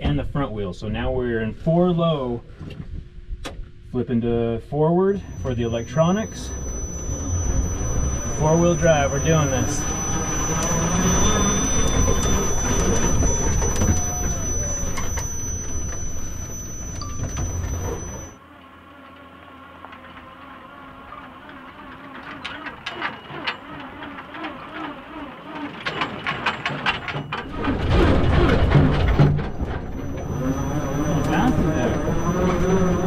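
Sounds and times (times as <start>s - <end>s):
electric motor whine: 5.2s - 18.4s, 29.2s - 33.0s
tyres rumbling on dirt: 5.6s - 18.3s, 21.9s - 33.0s.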